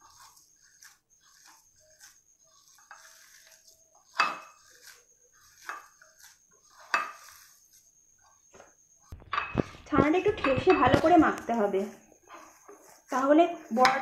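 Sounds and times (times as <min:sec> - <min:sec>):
hand kneading soft cheese: 0:00.0 - 0:14.0
clinks against glass plate: 0:09.2 - 0:09.7.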